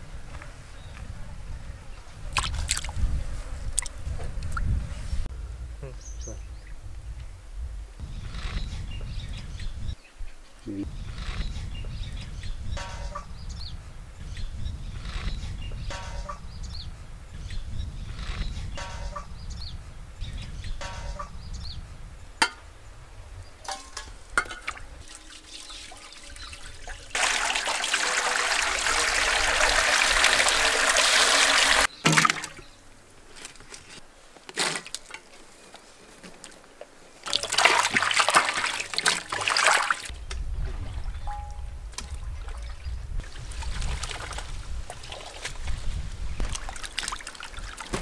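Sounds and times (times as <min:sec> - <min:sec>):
water pouring into metal basin: 0:25.0 - 0:32.4, 0:37.2 - 0:40.1.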